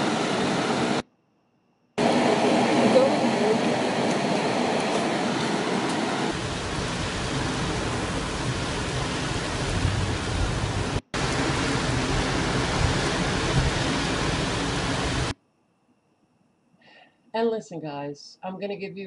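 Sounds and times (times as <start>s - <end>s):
waterfall roaring: 0.0s - 1.0s, 2.0s - 15.3s.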